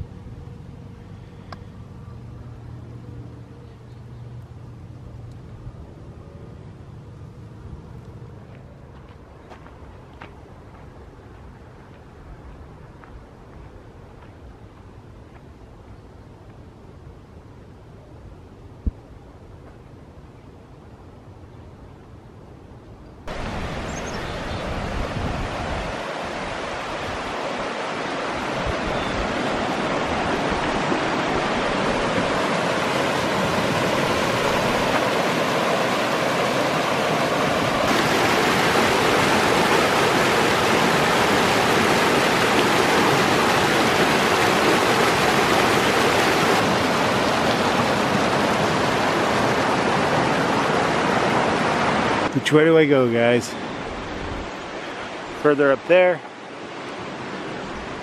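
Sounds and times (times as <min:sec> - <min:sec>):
rushing stream water: 0:23.3 - 0:58.0.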